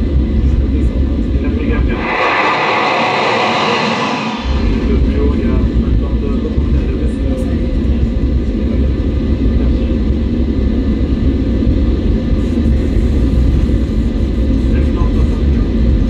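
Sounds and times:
high speed train rumble: 1.3s - 8.9s.

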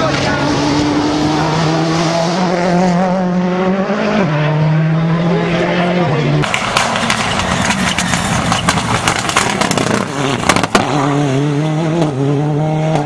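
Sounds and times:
rally car engine at high revs: 0.0s - 13.0s
sharp cracks: 6.4s - 11.0s.

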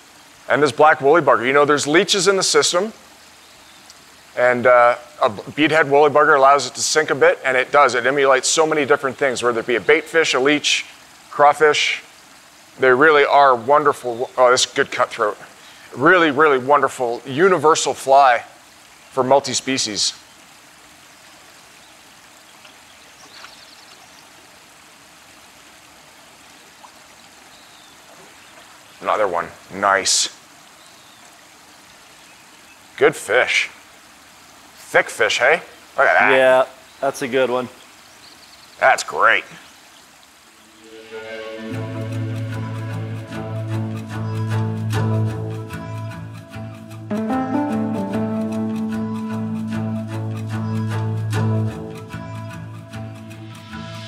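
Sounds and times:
river current rushing: 0.0s - 23.4s, 40.0s - 45.8s
music with low held notes and beat: 41.3s - 54.0s.

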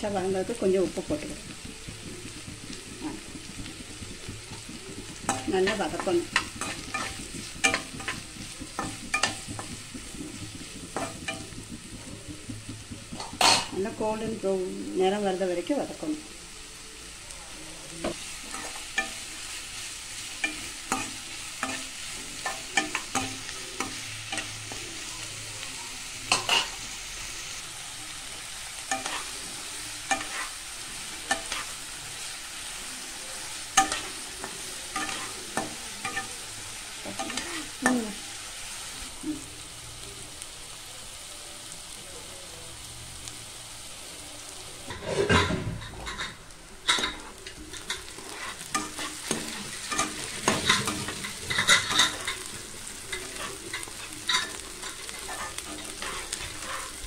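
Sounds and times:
onions sizzling in hot oil: 0.0s - 57.0s
spatula scraping a pan: 0.5s - 14.4s, 18.0s - 25.2s, 26.3s - 27.6s, 28.6s - 38.0s, 44.9s - 57.0s.

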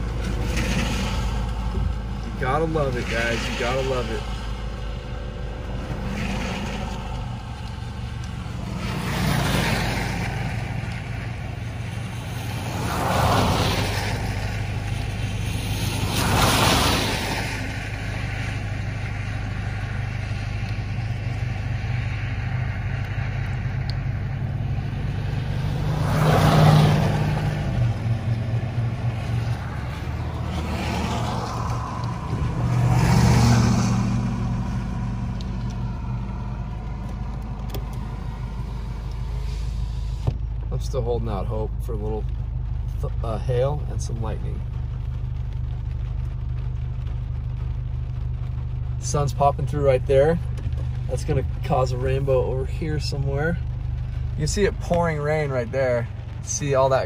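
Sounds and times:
passing engine: 0.0s - 40.7s
car engine and cabin hum: 0.0s - 57.0s
tyres hissing on wet pavement: 0.0s - 57.0s.

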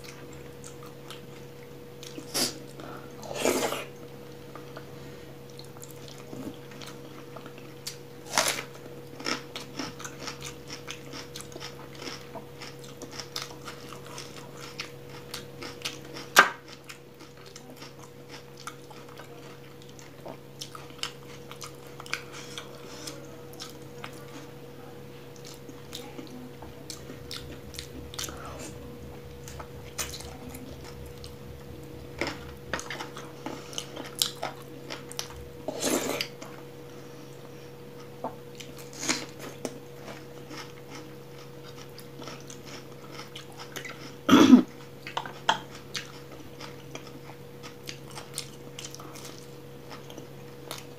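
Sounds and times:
faint steady hum: 0.0s - 50.9s
chewing and mouth smacks: 38.0s - 50.9s.

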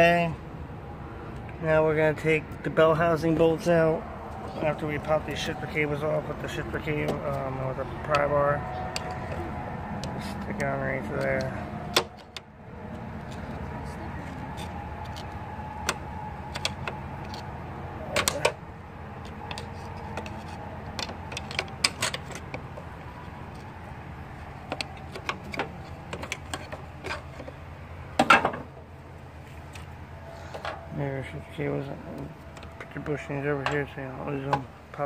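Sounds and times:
steady low hum: 0.0s - 35.0s
metallic clicks and knocks: 19.2s - 23.7s, 24.6s - 27.6s.

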